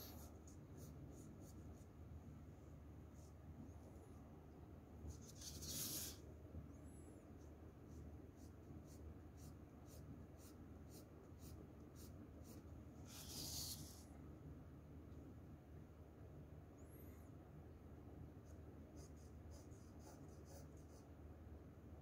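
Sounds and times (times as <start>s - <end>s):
pencil scratching on paper: 5.1s - 6.2s, 7.4s - 14.0s, 18.4s - 21.1s.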